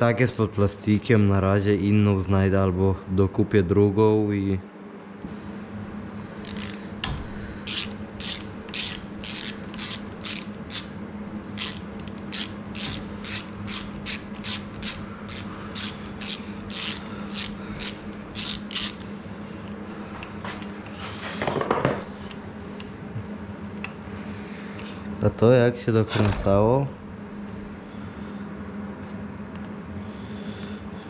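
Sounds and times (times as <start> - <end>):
ratchet wrench clicking: 6.4 - 6.8, 7.7 - 10.9, 11.6 - 19.0.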